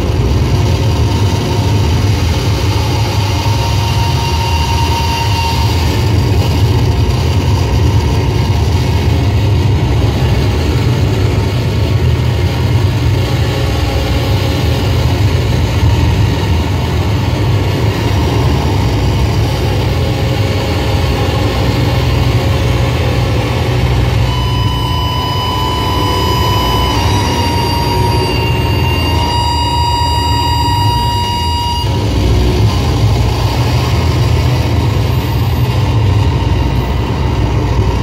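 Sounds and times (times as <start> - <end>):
noise music drone: 0.0 - 38.0
held tones: 24.1 - 33.4.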